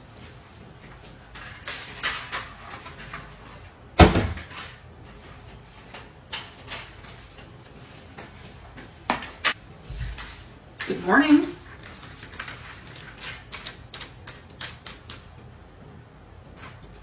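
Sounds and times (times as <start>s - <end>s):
cupboard doors opening and closing: 4.0s - 4.6s.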